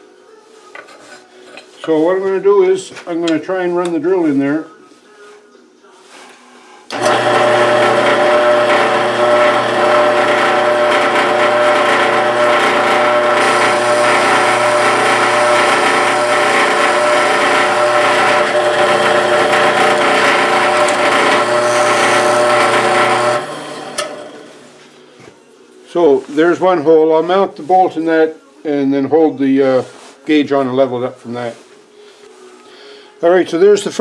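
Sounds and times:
drill bit cutting metal: 6.9 - 24.5
drill press motor hum: 6.9 - 24.7.

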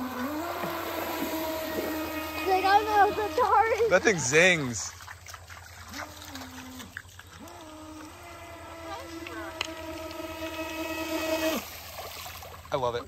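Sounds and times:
toy boat electric motor whining: 0.0 - 4.9, 5.9 - 11.8.

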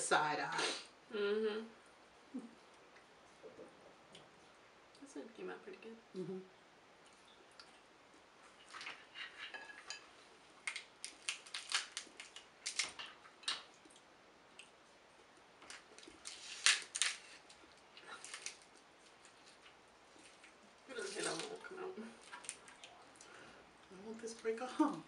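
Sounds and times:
crab shells cracking: 10.6 - 14.8, 15.6 - 20.6, 22.2 - 23.2.

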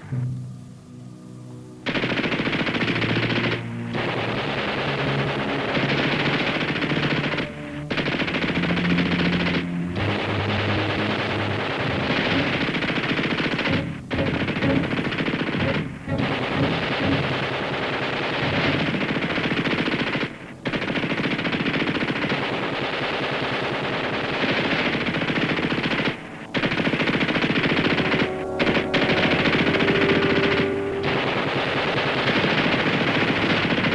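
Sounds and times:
automatic gunfire: 1.9 - 33.9.

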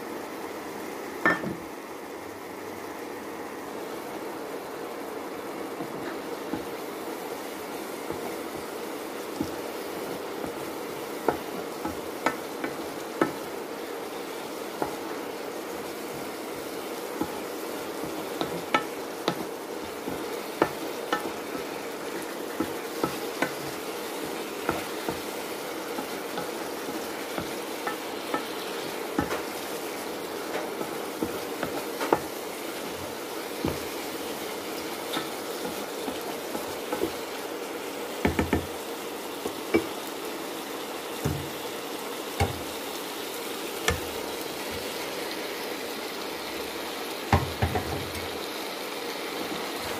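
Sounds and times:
vegetables sizzling in a frying pan: 0.0 - 49.9
spatula knocking and scraping pan: 5.7 - 6.9, 7.6 - 37.4, 38.1 - 40.0, 41.2 - 41.7, 42.3 - 42.8, 43.8 - 45.1, 47.3 - 48.3.

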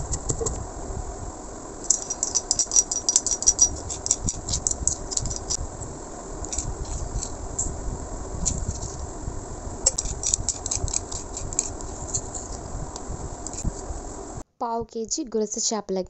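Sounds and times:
pestle grinding seeds in stone mortar: 1.9 - 5.6, 9.9 - 12.6.

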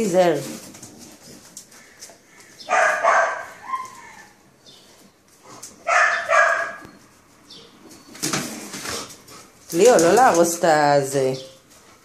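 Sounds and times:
dog barking: 2.7 - 4.2, 5.9 - 6.9
dog whining: 2.7 - 4.4.

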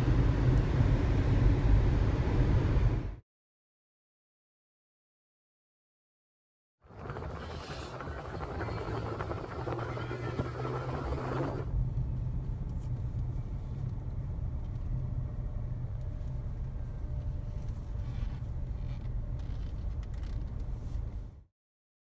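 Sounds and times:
diesel locomotives rumbling: 6.9 - 11.9.

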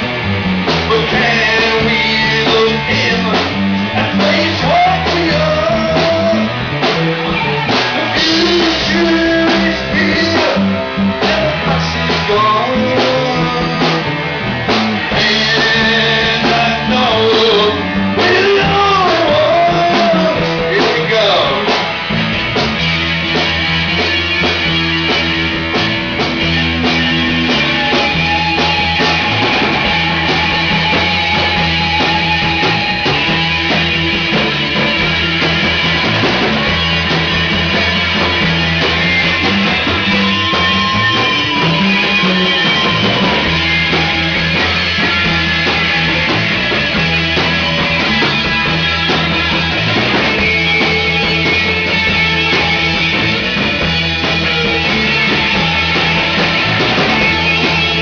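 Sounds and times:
live rock band playing: 0.0 - 58.0
lead guitar note bending: 21.8 - 58.0.

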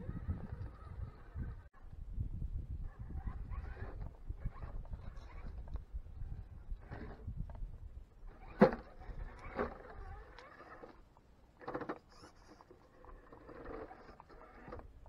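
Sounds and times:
electric motor and gears whining: 0.0 - 1.8, 2.9 - 7.6, 8.2 - 15.0
tyres scrabbling on rock: 8.3 - 11.0, 11.6 - 14.9.

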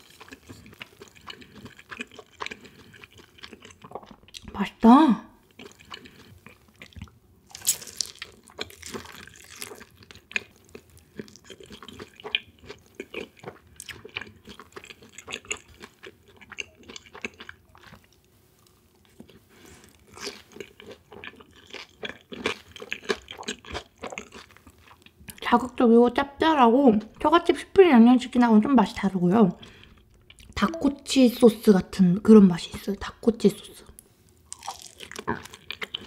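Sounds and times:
chewing crispy fried chicken: 0.0 - 4.4, 5.4 - 25.5, 34.3 - 36.0.

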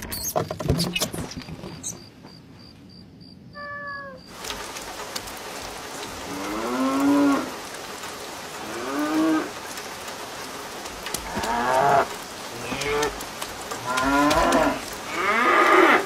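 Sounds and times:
steady hiss with crackling: 4.3 - 16.0.

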